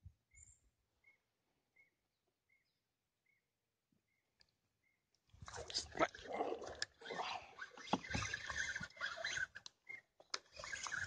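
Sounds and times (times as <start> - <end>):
fishing reel gears whirring: 6.7 - 11.0.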